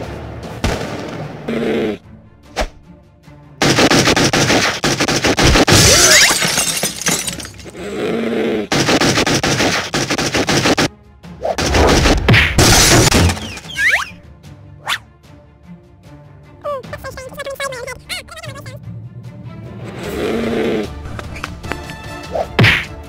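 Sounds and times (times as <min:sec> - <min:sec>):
loud background music: 0:02.1 - 0:05.9
cartoon fight whacks and crashes: 0:22.6 - 0:22.9.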